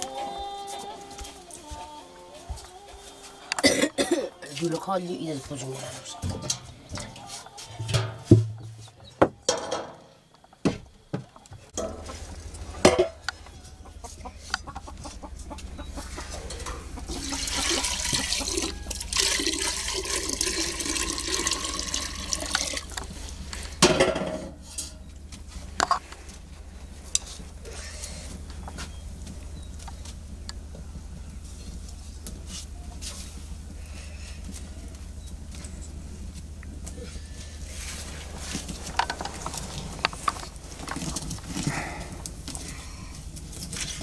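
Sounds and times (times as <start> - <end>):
metal pots and lid clanking: 7.8 - 8.7, 9.4 - 10.1, 11.8 - 12.2, 12.8 - 13.2, 23.8 - 25.0
water pouring into a pot: 17.2 - 22.9.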